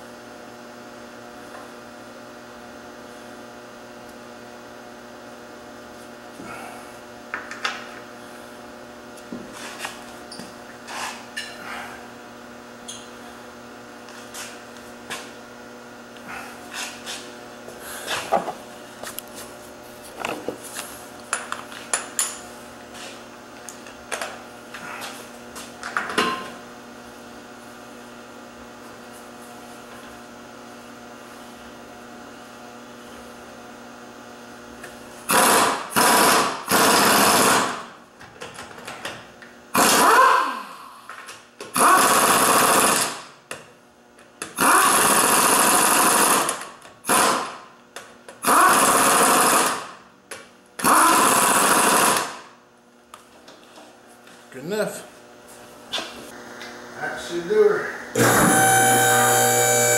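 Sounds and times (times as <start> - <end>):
steady low hum: 0.0 - 35.3, 52.6 - 59.9
impact wrench rattling bursts: 35.3 - 37.8, 39.8 - 40.2, 41.7 - 43.2, 44.6 - 47.6, 48.4 - 49.9, 50.8 - 52.4.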